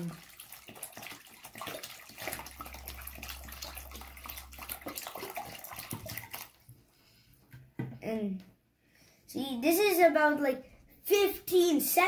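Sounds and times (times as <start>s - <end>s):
water glugging from bottle: 0.0s - 6.7s
water splashing into tub: 0.0s - 6.8s.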